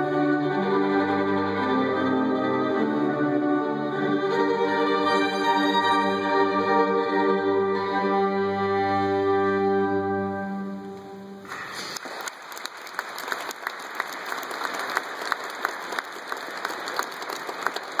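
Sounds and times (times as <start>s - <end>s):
pipe organ and violin chord: 0.0s - 11.4s
audience applauding: 11.5s - 18.0s.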